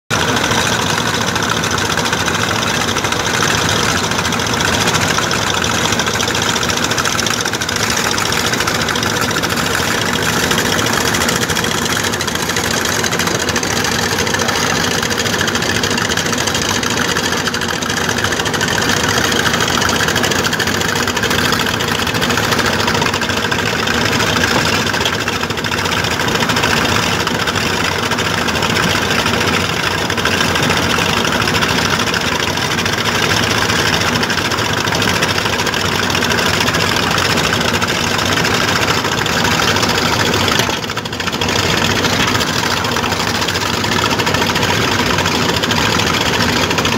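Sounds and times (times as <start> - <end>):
pump engine running: 0.1 - 46.9
slurry pouring: 2.8 - 15.9.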